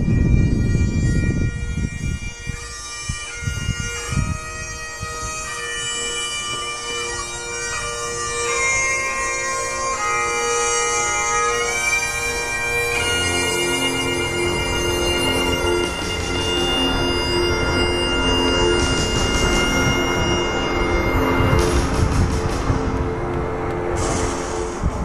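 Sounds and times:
bagpipe music: 0:00.0 - 0:25.0
low rumble: 0:16.1 - 0:25.0.

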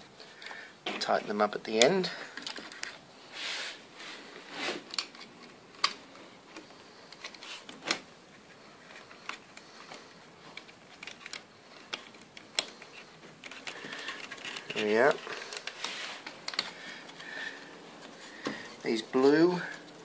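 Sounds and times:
small clicks and light knocks: 0:04.9 - 0:17.3.

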